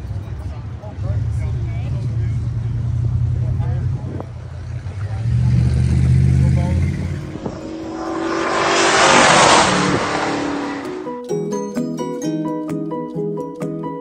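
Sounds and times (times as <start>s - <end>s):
car engine running: 1.5s - 11.2s
car driving past at speed: 4.6s - 11.2s.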